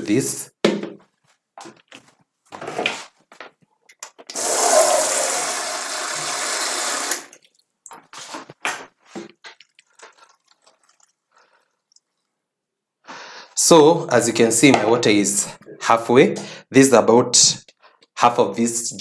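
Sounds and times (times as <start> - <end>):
water running hard: 4.4 - 7.3
water pouring into blender jar: 4.4 - 7.7, 9.5 - 12.2.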